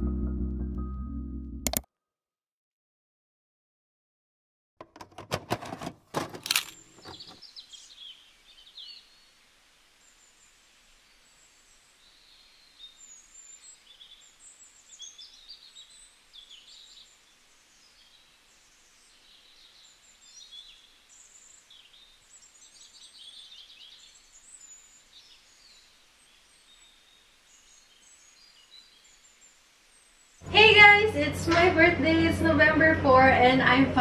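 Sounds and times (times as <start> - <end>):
songbirds chirping: 6.4 - 31.3.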